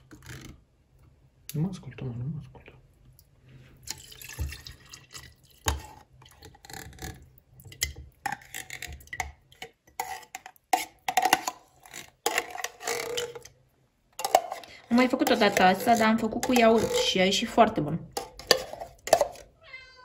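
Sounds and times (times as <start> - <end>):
metal spoon scraping tin can: 8.2 - 13.6, 14.2 - 19.5.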